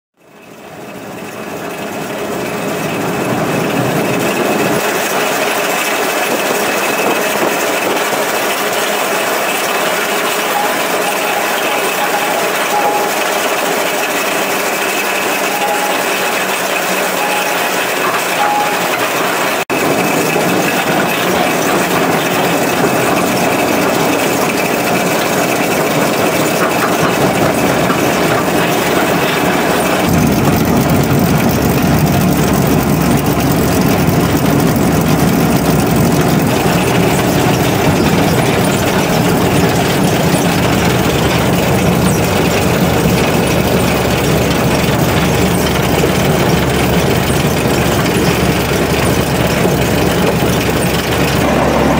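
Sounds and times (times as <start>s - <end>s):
diesel locomotive running: 0.2s - 51.9s.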